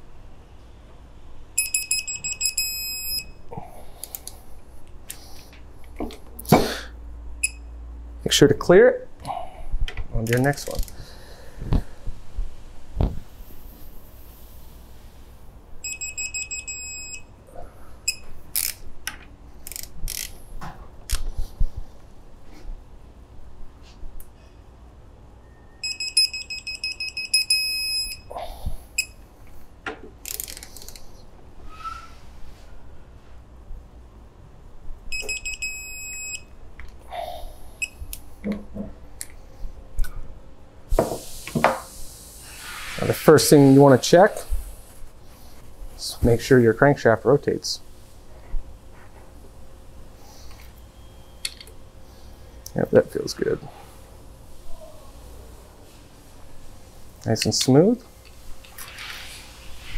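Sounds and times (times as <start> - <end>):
torque wrench beeping rapidly: 1.6 - 3.3
digital torque wrench beeping: 1.6 - 3.4, 15.8 - 17.2, 25.8 - 28.3
wrench ratchet clicking: 18.5 - 18.8, 19.6 - 20.4, 30.2 - 30.9.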